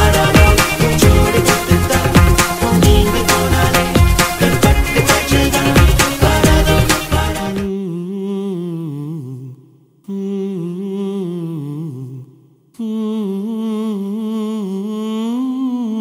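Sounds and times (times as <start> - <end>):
person humming slow melody: 7.6 - 16.0.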